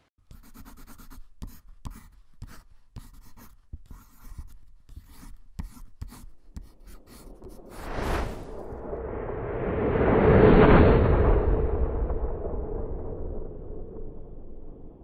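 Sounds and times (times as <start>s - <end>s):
pencil scratching on paper: 0.2s - 8.5s.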